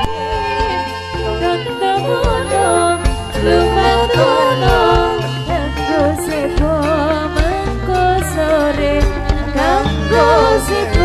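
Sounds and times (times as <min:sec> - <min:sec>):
drum strikes: 0:00.0 - 0:05.6
devotional music melody: 0:00.0 - 0:11.0
sustained bass notes: 0:00.0 - 0:11.0.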